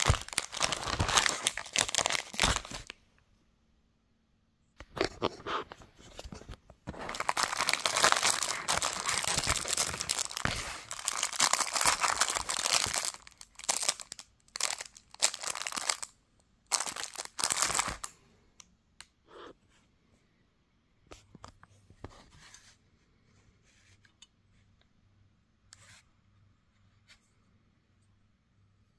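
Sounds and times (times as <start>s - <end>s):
plastic bag crinkling and tearing: 0.0s - 3.0s, 6.9s - 16.1s, 16.7s - 18.1s.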